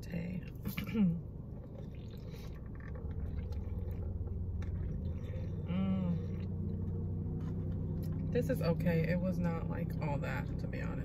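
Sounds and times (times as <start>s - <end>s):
low steady hum: 0.0s - 11.0s
sipping and swallowing: 0.5s - 7.0s
person humming mm: 5.5s - 6.5s.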